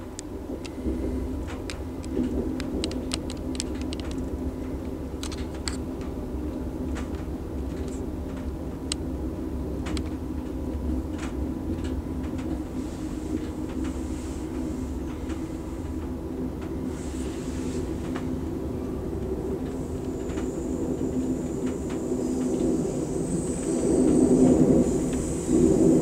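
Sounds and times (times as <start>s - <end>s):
train wheels rumbling on rail: 0.0s - 26.0s
sharp clicks and ticks: 1.5s - 4.3s.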